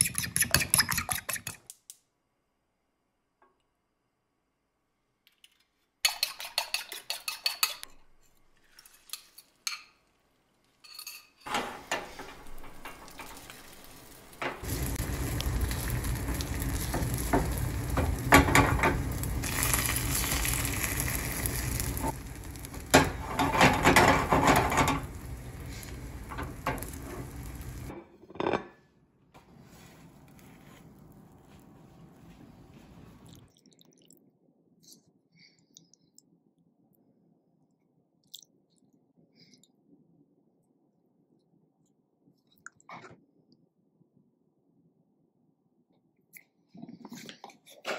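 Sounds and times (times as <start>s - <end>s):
spatula scraping and tapping pan: 6.0s - 7.9s
eggs sizzling in a frying pan: 11.8s - 27.9s.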